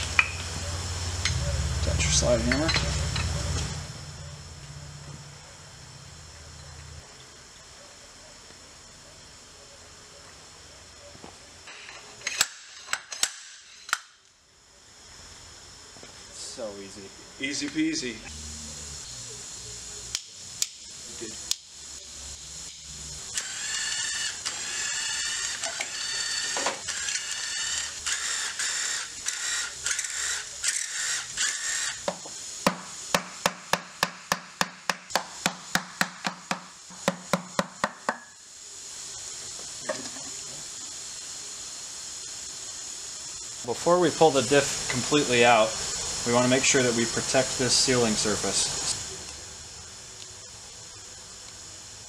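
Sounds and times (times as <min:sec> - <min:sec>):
cordless driver motor whining: 0:22.9 - 0:32.1.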